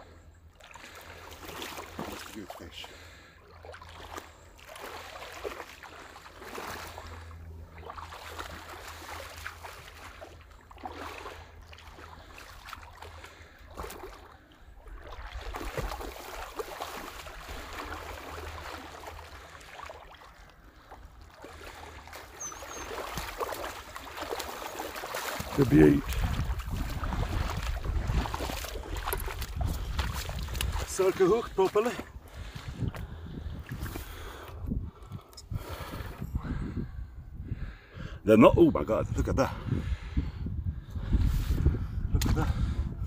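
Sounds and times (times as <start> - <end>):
fish splashing in shallow water: 0.0 - 34.6
wind rumbling on microphone: 25.4 - 43.0.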